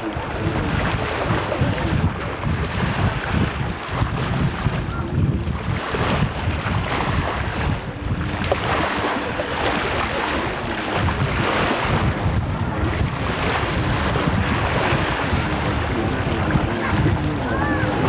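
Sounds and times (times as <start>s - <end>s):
rushing water splashing: 0.0s - 18.0s
watercraft motor running: 0.0s - 18.0s
wind buffeting microphone: 0.0s - 18.0s.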